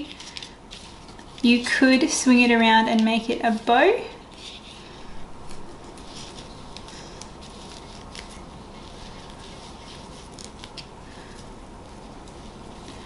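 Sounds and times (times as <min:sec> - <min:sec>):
ribbon rustling and clicking: 0:00.0 - 0:01.8, 0:04.3 - 0:13.0
steady background hiss: 0:00.0 - 0:13.0.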